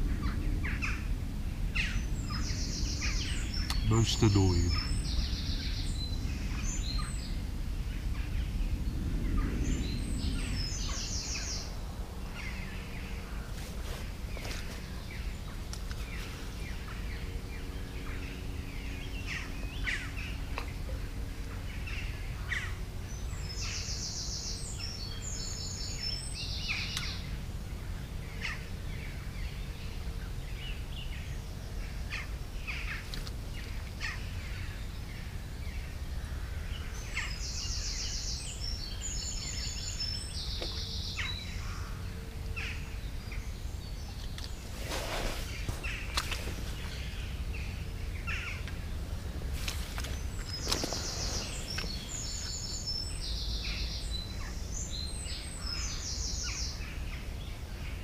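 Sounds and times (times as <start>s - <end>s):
steady low rumble: 0.0s - 55.8s
birds chirping: 0.0s - 58.0s
songbird trilling: 49.9s - 56.8s.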